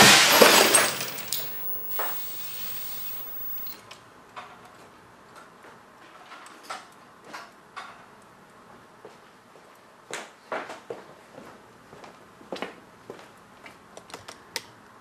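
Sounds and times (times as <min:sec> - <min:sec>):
glass crashing: 0:00.0 - 0:03.8
pieces dropping: 0:00.0 - 0:03.8.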